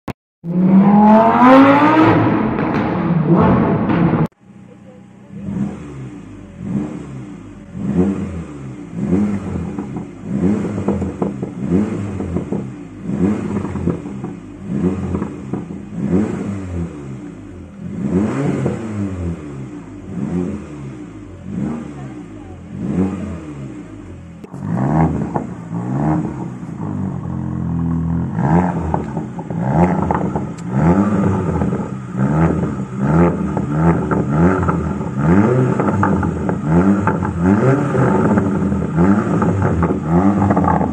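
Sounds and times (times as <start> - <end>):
car engine revving: 0.4 - 40.9.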